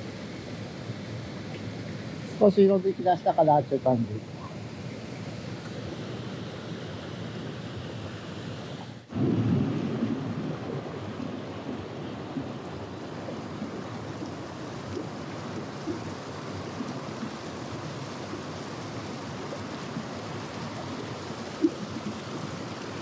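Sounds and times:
stream babbling over rocks: 0.0s - 23.0s.

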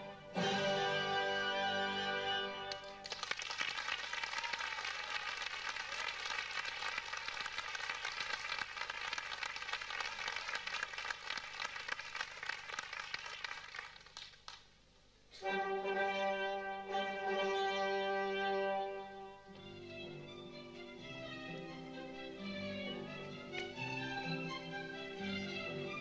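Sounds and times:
music: 0.0s - 3.2s, 15.3s - 26.0s
audience applauding: 2.7s - 14.7s.

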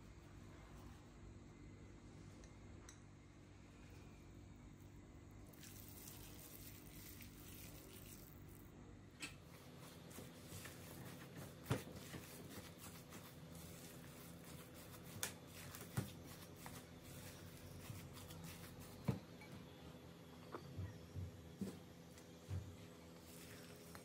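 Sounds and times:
spatula scraping and squishing: 5.6s - 8.6s, 9.8s - 19.1s.

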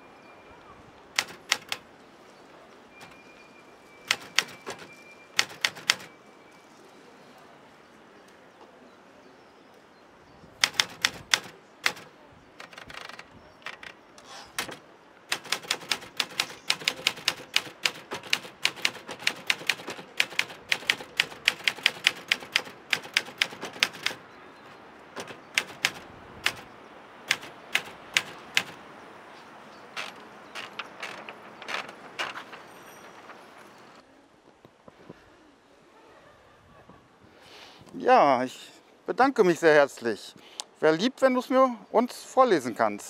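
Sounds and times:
typewriter keys clacking: 1.2s - 1.8s, 3.0s - 3.2s, 4.1s - 6.1s, 10.6s - 24.2s, 25.2s - 26.6s, 27.3s - 28.8s, 30.0s - 33.4s.

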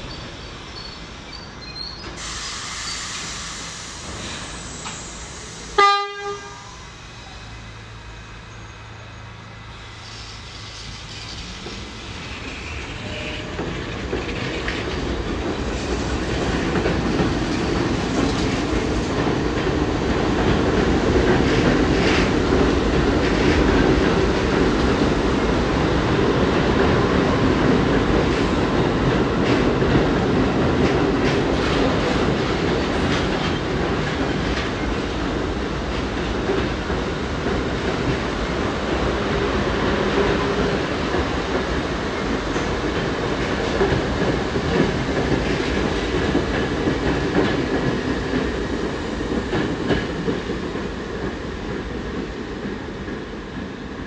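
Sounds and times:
subway train rumbling: 0.0s - 54.0s
wheels clacking over rail joints: 10.8s - 25.1s.

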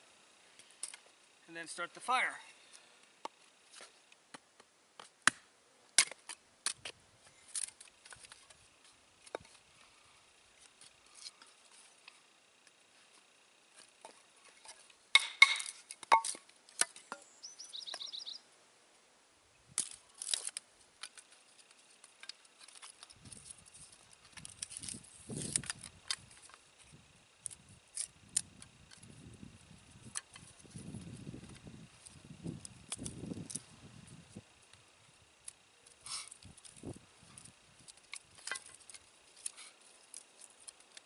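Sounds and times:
hatchet splitting wood: 4.3s - 6.9s, 14.0s - 17.2s
soft rustling of wood pieces: 6.1s - 17.2s, 19.7s - 41.0s.

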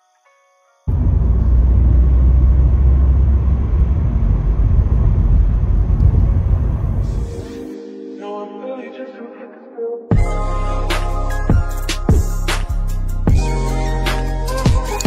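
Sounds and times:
car road and engine noise: 0.9s - 7.2s.

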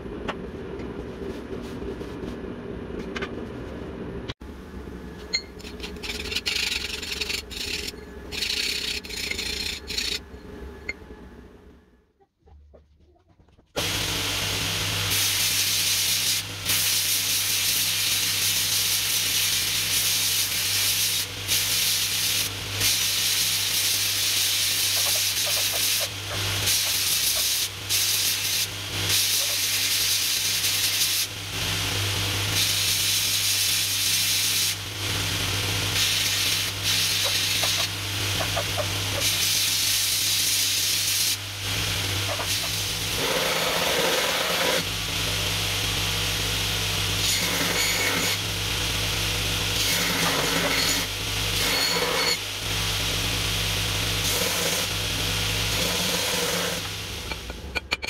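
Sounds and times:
steel grinding on belt: 5.4s - 10.5s, 47.2s - 48.4s, 49.8s - 52.5s
belt grinder motor hum: 5.6s - 10.9s, 41.7s - 46.2s.

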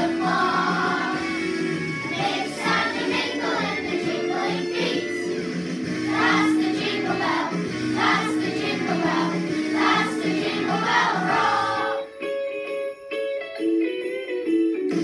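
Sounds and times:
children's choir singing: 0.0s - 1.3s, 2.1s - 5.4s, 6.0s - 12.1s
instrumental accompaniment: 0.0s - 15.0s.

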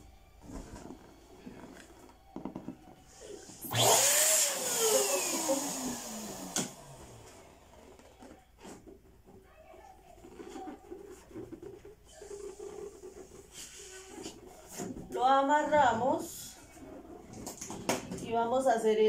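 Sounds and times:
balloon inflator hissing: 2.5s - 8.2s.

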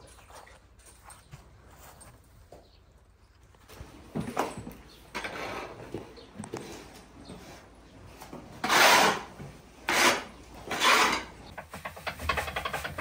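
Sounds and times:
hand tool scraping floor: 4.2s - 13.0s.

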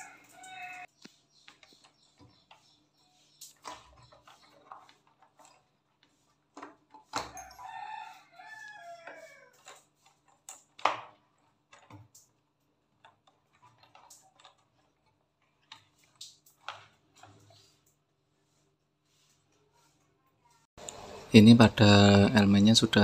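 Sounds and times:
rooster crowing: 0.0s - 0.9s, 7.3s - 9.6s
clicks and knocks of metal fittings: 0.0s - 18.1s.

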